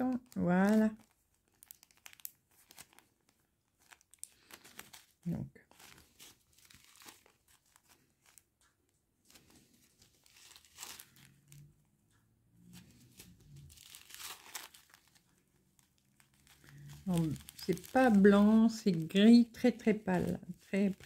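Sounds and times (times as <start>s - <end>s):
plastic bags crinkling: 0.0s - 8.6s, 9.3s - 11.9s, 12.7s - 21.0s
small beads shifting in bag: 10.0s - 11.7s, 13.2s - 19.1s.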